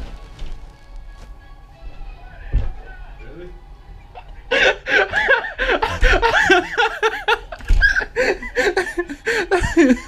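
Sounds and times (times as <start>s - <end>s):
person laughing: 4.2s - 10.0s.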